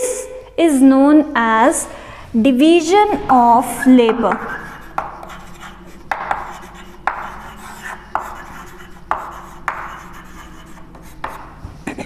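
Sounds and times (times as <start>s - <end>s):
chalk scratching on board: 4.0s - 11.6s
chalk tapping on chalkboard: 4.0s - 11.6s.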